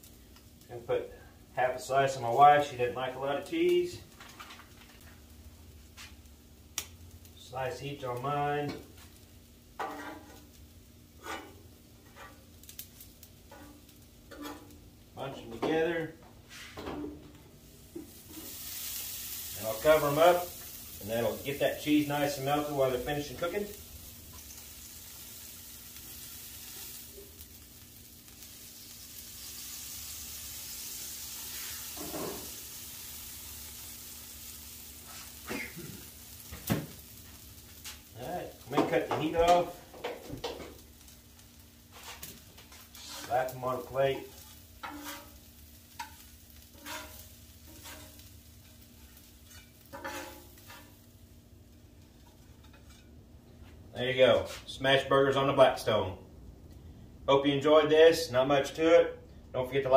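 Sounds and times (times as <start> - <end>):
burger patties sizzling on griddle: 0.0 - 53.1
metal spatula scraping griddle: 9.8 - 10.5, 11.2 - 12.5, 13.5 - 14.8, 31.4 - 32.7, 42.9 - 51.0, 52.2 - 53.1.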